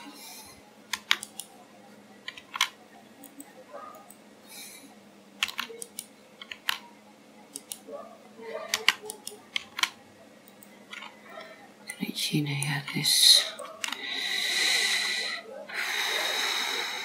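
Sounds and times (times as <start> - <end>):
keyboard keystrokes: 0.9 - 1.5, 2.2 - 3.4, 5.4 - 6.8, 7.5 - 7.8, 8.7 - 11.1, 12.6 - 14.0
mouse clicks: 7.5 - 7.8.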